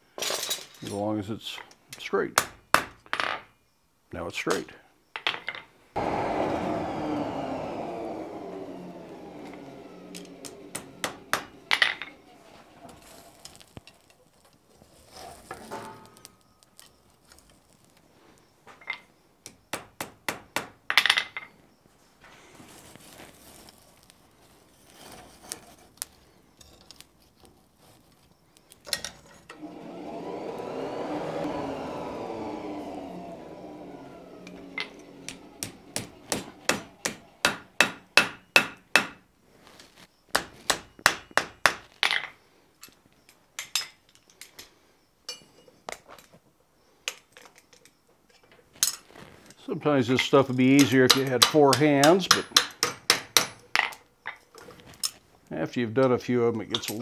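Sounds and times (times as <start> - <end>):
forge blower whirring: 6.0 - 13.7, 29.4 - 39.1
hammer striking iron on anvil: 36.7 - 39.2.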